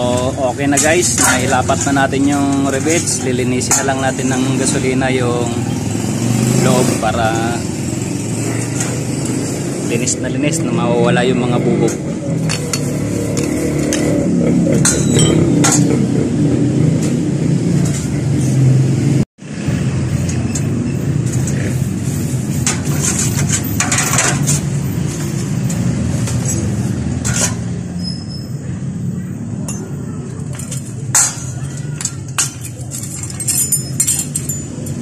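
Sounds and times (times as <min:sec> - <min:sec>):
metal parts clinking in basin: 0:00.0 - 0:05.6, 0:14.7 - 0:16.1, 0:22.4 - 0:28.2, 0:29.6 - 0:35.0.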